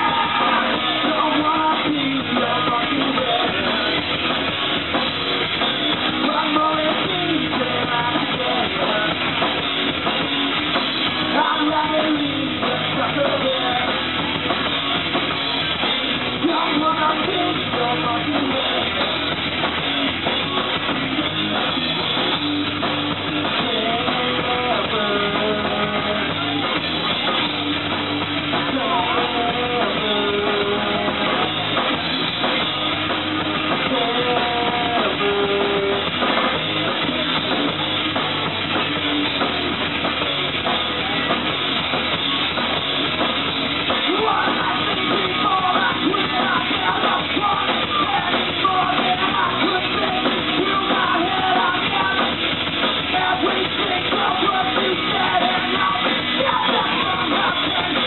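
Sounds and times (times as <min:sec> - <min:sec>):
lead singer singing: 0:00.0 - 0:04.6, 0:05.6 - 0:10.2, 0:11.0 - 0:14.3, 0:16.1 - 0:19.5, 0:23.1 - 0:27.6, 0:28.2 - 0:37.8, 0:43.8 - 0:58.0
bass guitar: 0:00.0 - 0:58.0
drum kit: 0:00.0 - 0:58.0
electric guitar: 0:00.0 - 0:58.0.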